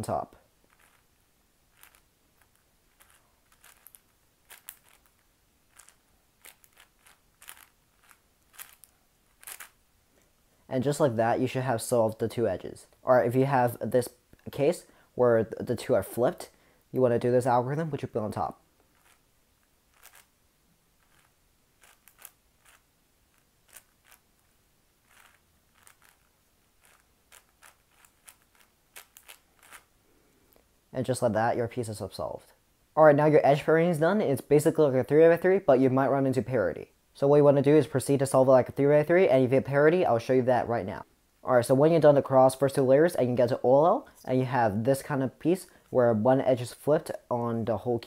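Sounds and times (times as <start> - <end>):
puzzle cube layers clicking: 0.7 - 1.0, 1.7 - 9.8, 19.9 - 20.3, 21.0 - 29.9.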